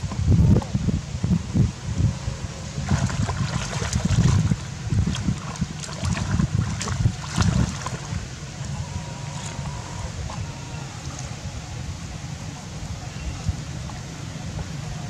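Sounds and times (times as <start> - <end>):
wind rumbling on microphone: 0.0 - 15.0
monkey splashing in water: 2.8 - 11.3.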